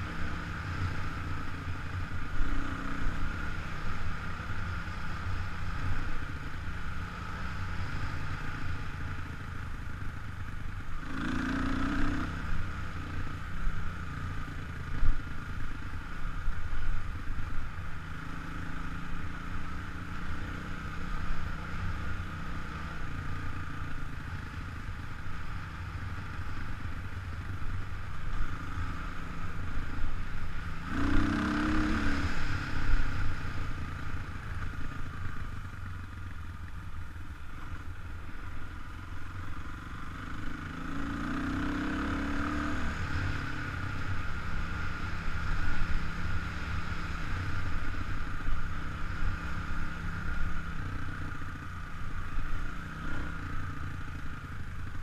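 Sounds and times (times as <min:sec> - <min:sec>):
dirt bike engine revving: 0:30.8 - 0:33.0.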